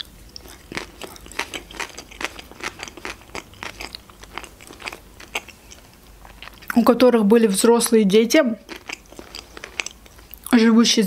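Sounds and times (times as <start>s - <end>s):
crunchy chewing: 0.0s - 6.9s, 8.6s - 10.5s.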